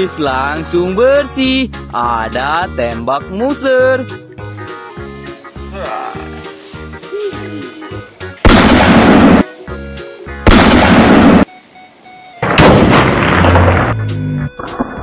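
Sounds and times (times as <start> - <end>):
background music with steady beat: 0.0 - 13.0, 13.7 - 15.0
toy pistol gunshot blasts: 8.5 - 9.5, 10.5 - 11.5, 12.4 - 13.8.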